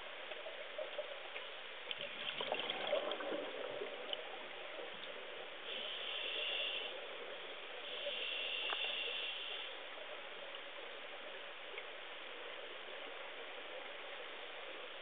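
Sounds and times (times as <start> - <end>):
room tone hiss: 0.0 - 15.0
faint click: 8.6 - 9.0, 11.7 - 11.9.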